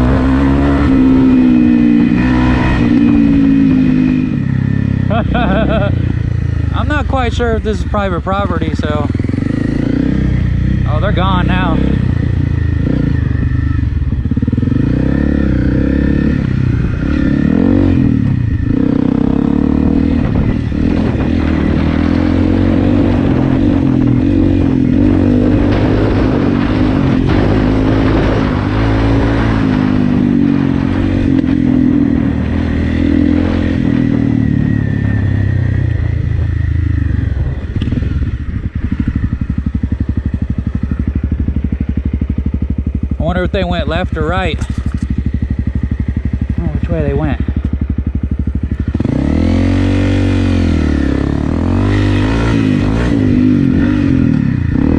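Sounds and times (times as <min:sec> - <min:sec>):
motorcycle engine revving: 0:00.0 - 0:54.9.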